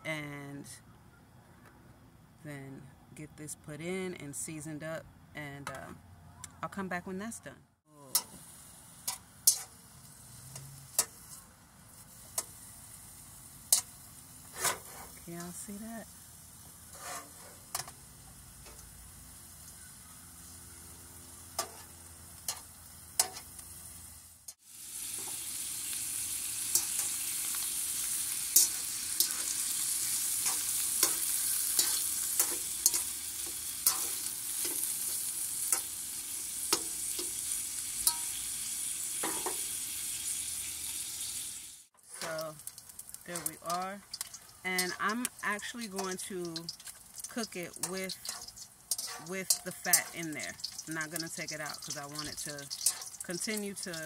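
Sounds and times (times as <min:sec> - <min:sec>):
fat sizzling in a wok: 0:07.9 - 0:54.0
wire whisk clicking and scraping: 0:21.6 - 0:23.7, 0:30.4 - 0:34.8, 0:42.2 - 0:54.0.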